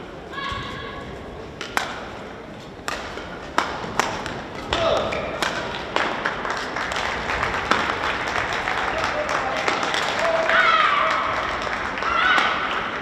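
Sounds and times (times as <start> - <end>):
sharp hand claps: 5.4 - 12.6
crowd applause: 5.9 - 13.0.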